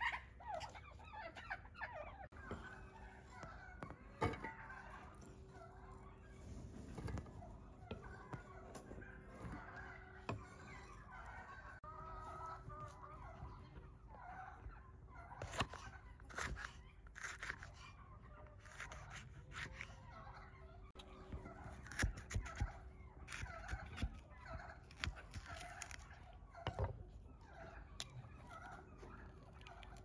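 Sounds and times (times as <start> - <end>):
fowl clucking and gobbling: 0.0 - 6.2, 8.0 - 16.0, 22.7 - 30.0.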